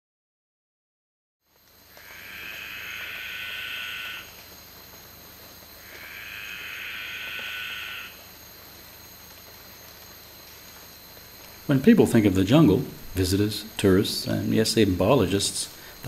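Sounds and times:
high-pitched insect drone: 1.7s - 16.0s
long animal calls: 1.9s - 4.4s, 5.8s - 8.2s.

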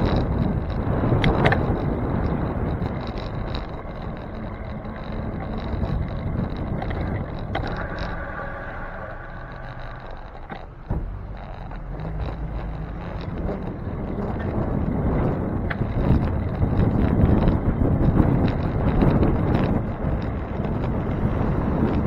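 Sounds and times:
road noise: 0.0s - 22.0s
sharp clicks: 0.0s - 22.0s
wind rumble on microphone: 0.0s - 22.0s
steady multi-pitched tone: 7.6s - 11.9s.

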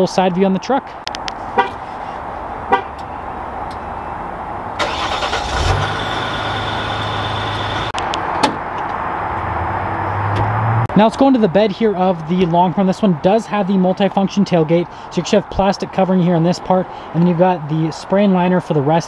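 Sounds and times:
diesel engine starting and idling: 4.7s - 8.0s.

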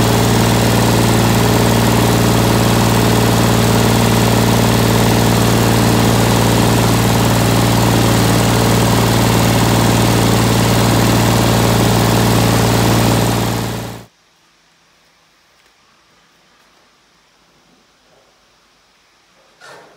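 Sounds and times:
tractor diesel engine idling: 0.0s - 14.1s.

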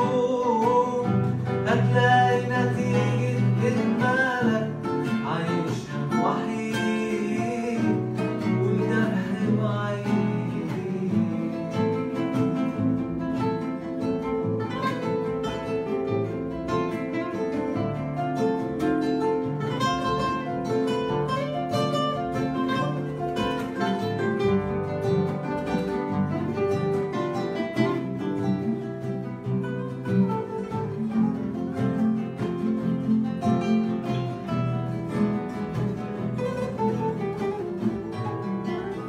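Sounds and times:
acoustic guitars playing: 0.0s - 39.0s.

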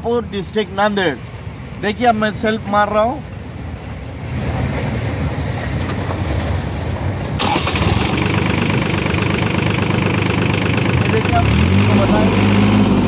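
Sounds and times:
diesel engine cranking: 3.2s - 13.0s
tractor engine running: 3.2s - 13.0s.

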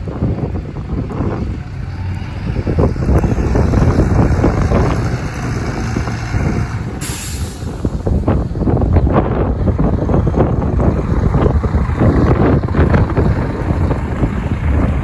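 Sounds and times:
bus diesel engine rumbling: 0.0s - 15.0s
air brake hiss: 7.0s - 7.9s.

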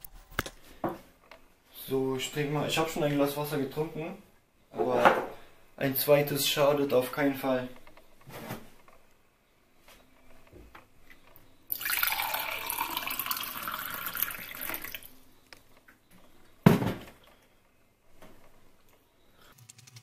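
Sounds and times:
water pouring into a glass: 11.7s - 15.1s.

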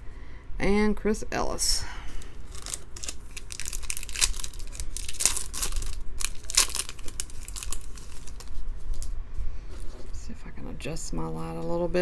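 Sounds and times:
foil wrapper crinkling and tearing: 2.4s - 9.1s.

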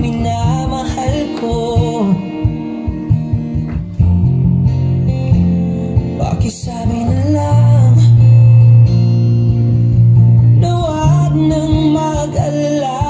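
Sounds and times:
person singing: 0.0s - 2.9s, 5.6s - 8.8s, 10.4s - 13.0s
guitar: 0.0s - 13.0s
heavy sustained bass line: 7.2s - 13.0s.

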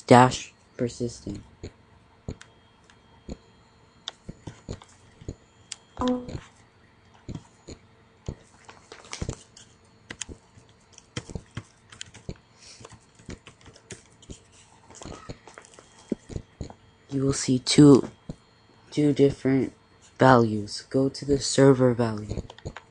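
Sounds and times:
computer keyboard typing: 1.2s - 3.4s, 4.0s - 6.5s, 7.1s - 17.4s, 22.1s - 22.9s
mouse clicks: 9.2s - 14.4s.

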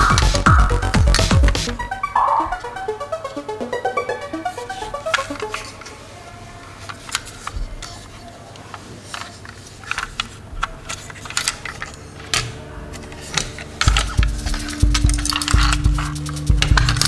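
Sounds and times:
plastic toy clicks and rattles: 4.5s - 5.9s, 6.8s - 17.0s.

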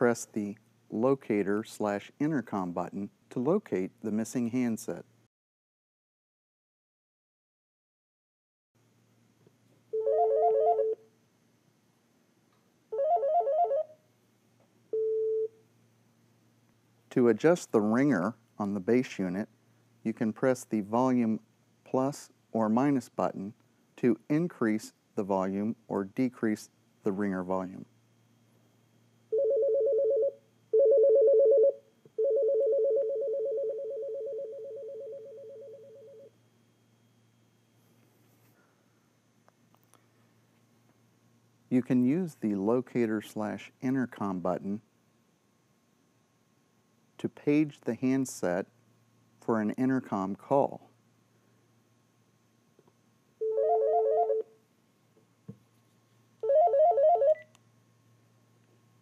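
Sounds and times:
phone ringer two-tone trill: 10.0s - 11.0s, 13.0s - 13.9s, 29.4s - 36.3s, 53.4s - 54.5s, 56.4s - 57.5s.

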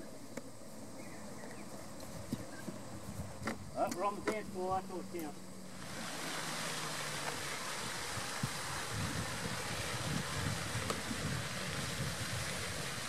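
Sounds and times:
wind noise on microphone: 1.9s - 3.8s, 7.4s - 13.0s.

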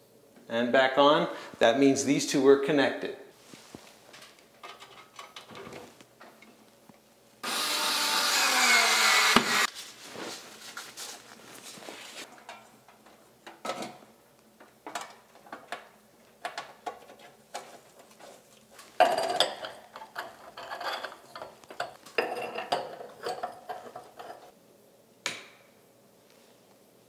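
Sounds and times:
metal and glass clinking: 19.0s - 24.5s.

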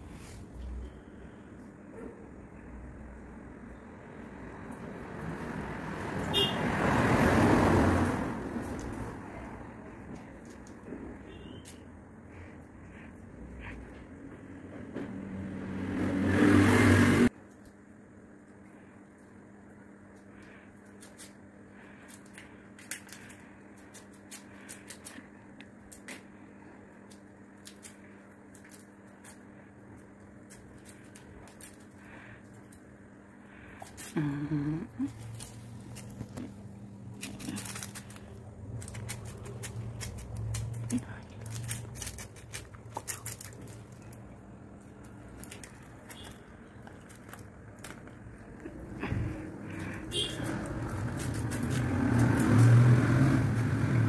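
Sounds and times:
faint steady hum: 17.3s - 50.3s.

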